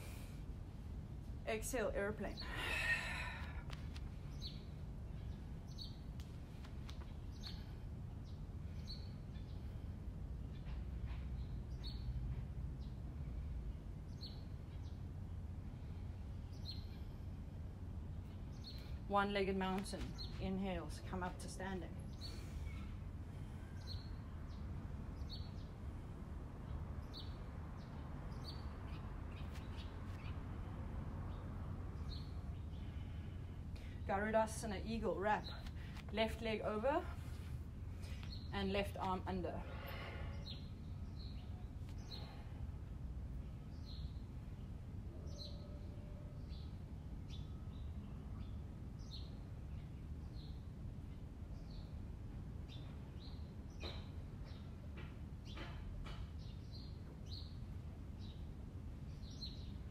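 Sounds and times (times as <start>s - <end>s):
birds chirping: 1.6s - 6.2s, 31.3s - 42.5s.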